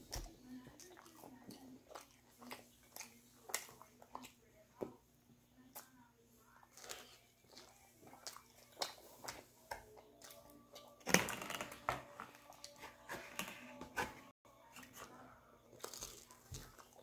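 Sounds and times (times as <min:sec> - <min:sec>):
man chewing crisp food: 0:00.0 - 0:04.4, 0:06.7 - 0:11.0, 0:15.7 - 0:17.0
food crackle: 0:15.0 - 0:17.0.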